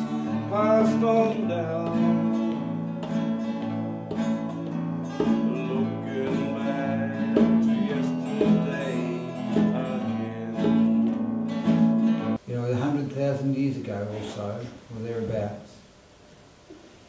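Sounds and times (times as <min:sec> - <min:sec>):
man singing: 0:00.0 - 0:02.6, 0:05.1 - 0:11.2
acoustic guitars strumming: 0:00.0 - 0:14.5.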